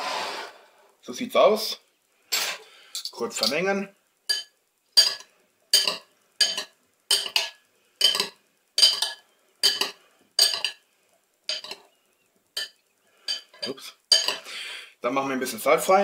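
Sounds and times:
metal spoons clinking in ceramic bowl: 0:04.3 - 0:10.8, 0:11.5 - 0:11.8, 0:12.6 - 0:14.4.

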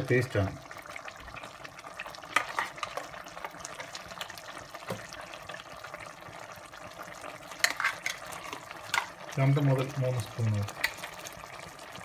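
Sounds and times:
gravy simmering sizzle: 0:00.0 - 0:12.0
wooden spoon stirring thick gravy: 0:07.5 - 0:10.0.

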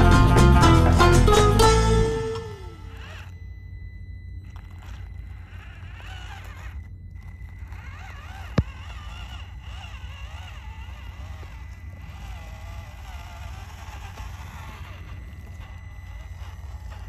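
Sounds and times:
tyres crunching on gravel: 0:04.5 - 0:17.0.

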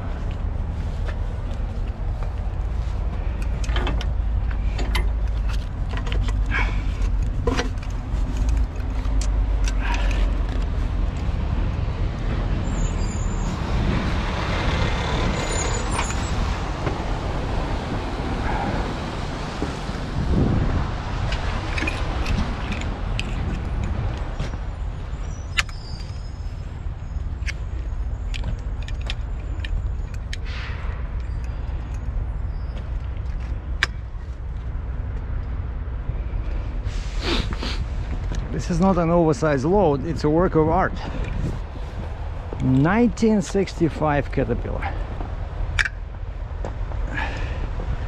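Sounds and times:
rush of noise: 0:09.6 - 0:24.9
metallic clicks and knocks: 0:45.7 - 0:46.0.

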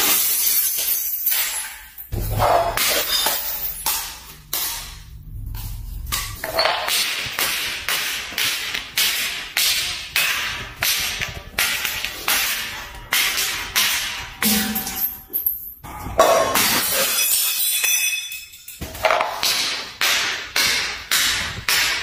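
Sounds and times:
glass bottle tumbling down stairs: 0:00.0 - 0:05.0, 0:06.0 - 0:20.0.

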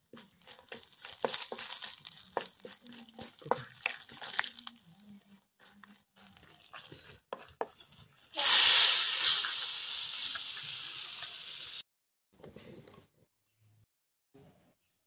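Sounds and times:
hot oil sizzling: 0:00.0 - 0:04.7, 0:07.6 - 0:11.8
wooden spatula scraping in wok: 0:00.0 - 0:05.0, 0:05.6 - 0:09.6.

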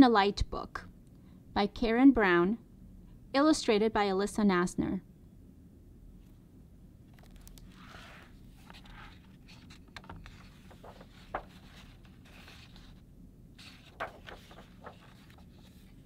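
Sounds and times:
book pages turning: 0:07.1 - 0:13.0, 0:13.6 - 0:16.0.

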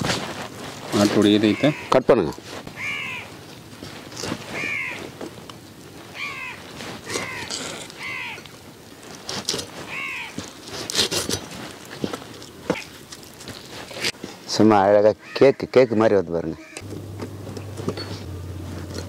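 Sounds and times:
crow cawing: 0:01.4 - 0:02.0, 0:02.7 - 0:03.4, 0:04.5 - 0:05.1, 0:06.1 - 0:08.5, 0:09.9 - 0:10.4, 0:15.2 - 0:16.8.

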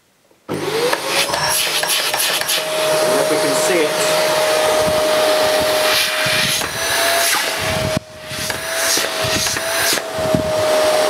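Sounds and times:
vacuum cleaner motor whine: 0:00.5 - 0:11.0
rush of air: 0:04.0 - 0:10.6.

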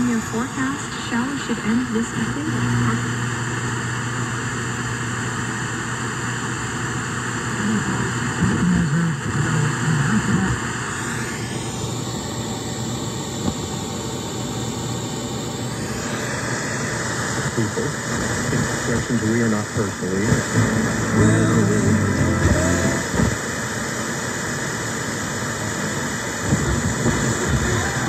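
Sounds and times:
faint broadcast voice: 0:00.0 - 0:03.2, 0:07.6 - 0:10.7, 0:17.4 - 0:23.4, 0:26.5 - 0:28.0
radio static hiss: 0:00.0 - 0:14.0, 0:15.6 - 0:28.0.

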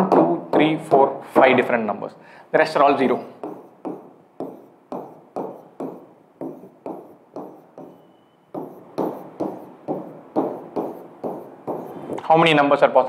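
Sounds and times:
marker tapping on whiteboard: 0:00.0 - 0:01.1, 0:03.0 - 0:12.2.

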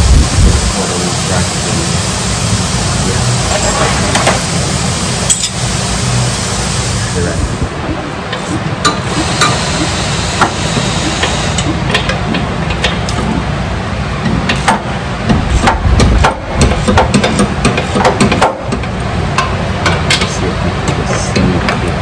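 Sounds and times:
low shop rumble: 0:00.0 - 0:22.0
tools clicking and knocking metal: 0:11.2 - 0:13.4, 0:14.2 - 0:22.0.

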